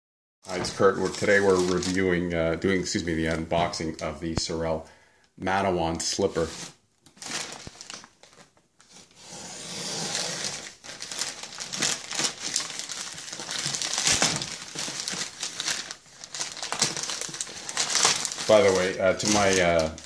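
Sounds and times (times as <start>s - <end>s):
plastic crinkling and rustling: 0.5s - 2.2s, 6.3s - 9.1s, 10.3s - 20.0s
plastic mailer bag torn open: 0.8s - 2.1s, 7.1s - 20.0s.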